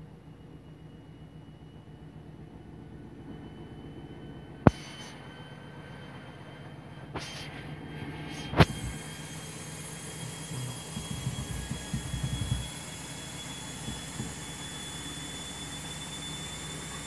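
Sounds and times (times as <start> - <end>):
washing machine spinning: 0.0 - 17.0.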